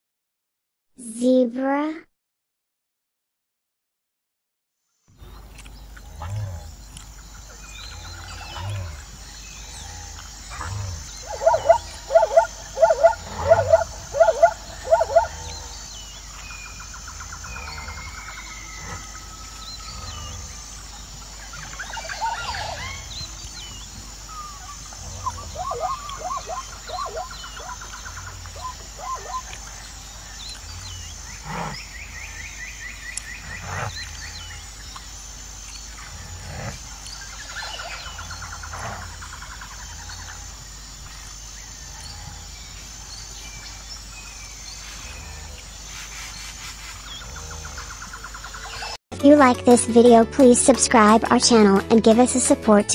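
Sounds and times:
zebra yelping barks: 10.6 - 15.5, 24.5 - 29.6.

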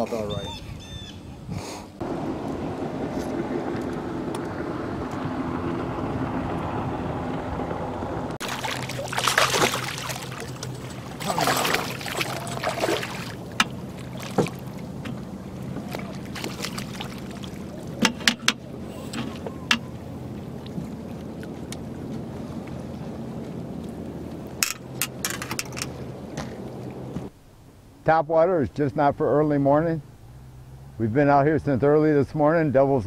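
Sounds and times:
boat motor hum: 0.0 - 28.0, 29.0 - 33.0
fish splashing at water surface: 8.4 - 21.6.

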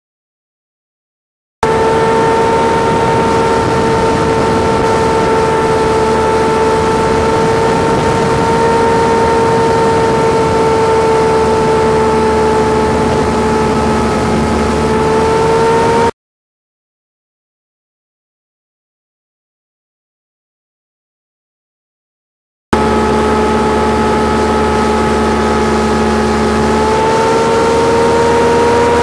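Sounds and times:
boat motor whining: 1.6 - 16.1, 22.8 - 29.0
broad rushing noise: 1.6 - 16.1, 22.8 - 29.0.

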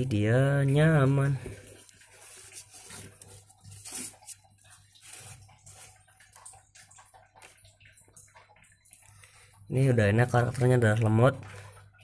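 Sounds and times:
rustling and scratching newspaper: 2.0 - 6.1.

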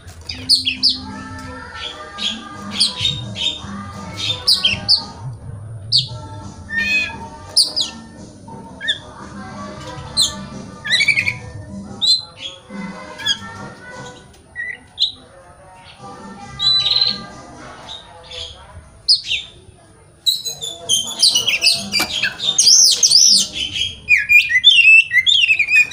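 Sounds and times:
bird squawky calls: 0.0 - 5.2, 5.9 - 19.6, 20.3 - 25.9
bird singing whistled notes: 5.9 - 8.0, 16.6 - 17.2, 20.2 - 25.9.

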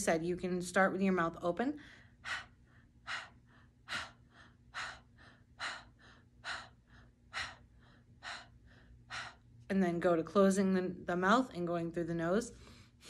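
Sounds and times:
woman breathing sharply: 1.8 - 9.6.

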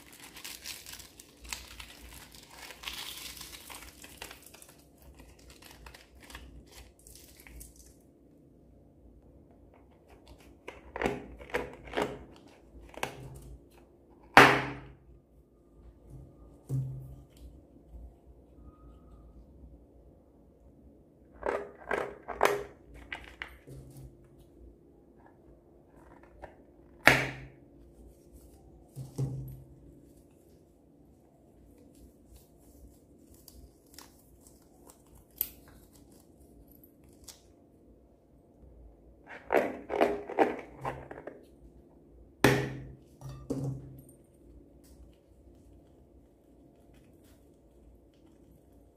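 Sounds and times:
balloon skin crackling off slime: 0.0 - 7.8.

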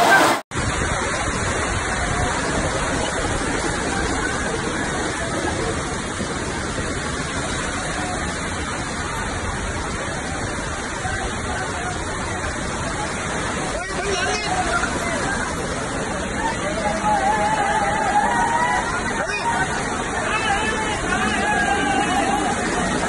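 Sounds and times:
floodwater rushing: 0.0 - 23.0.

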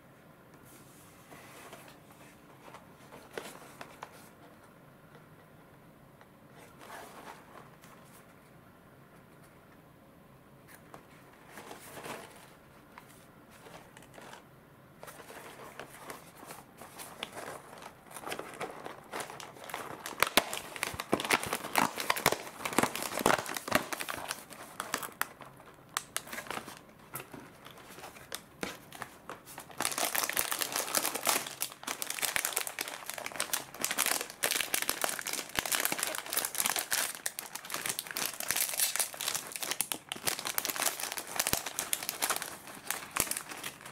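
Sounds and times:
foil pouch crinkling: 15.2 - 26.8, 29.0 - 43.9.

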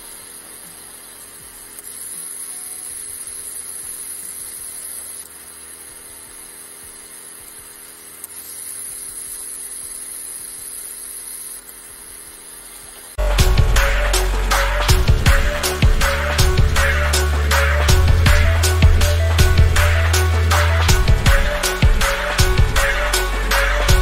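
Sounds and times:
small gear motor whirring: 0.0 - 13.2.

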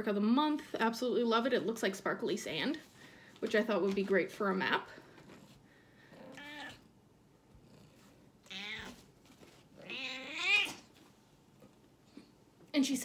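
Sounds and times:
cat meowing: 6.3 - 6.8, 8.4 - 9.1, 9.8 - 10.8.

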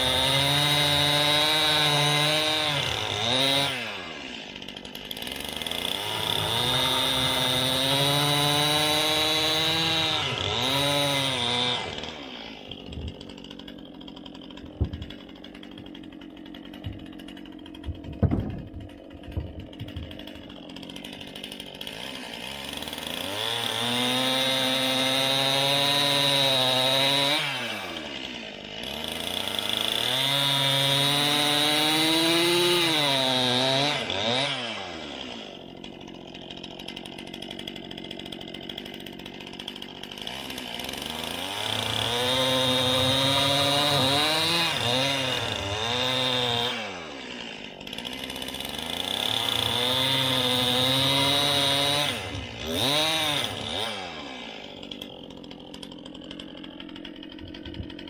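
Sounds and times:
chainsaw cutting wood: 0.0 - 58.0
sharp knocks: 16.8 - 17.1, 17.8 - 20.2.

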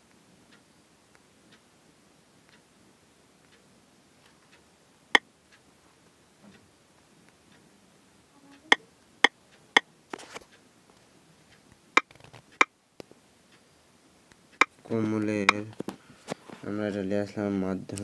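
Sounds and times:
soft rustle: 10.1 - 13.7, 14.9 - 17.1.

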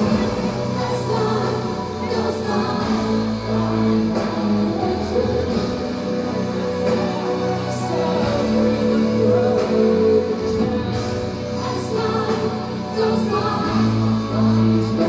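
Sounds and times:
metal band playing live: 0.0 - 15.0.

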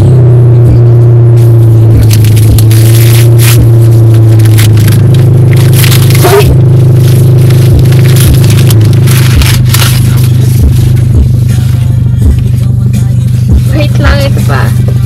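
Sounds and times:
steady low hum: 0.0 - 15.0
paper wrapping rustling and tearing: 2.0 - 3.6, 4.2 - 11.1.

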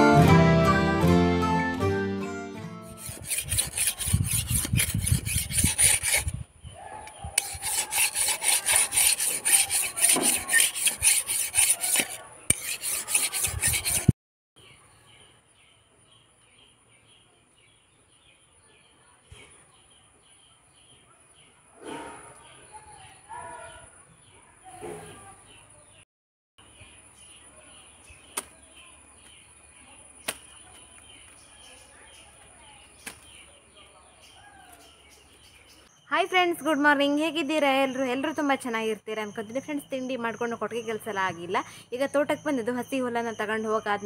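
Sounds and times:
blade rasping on whetstone: 2.9 - 6.4, 7.4 - 14.1.

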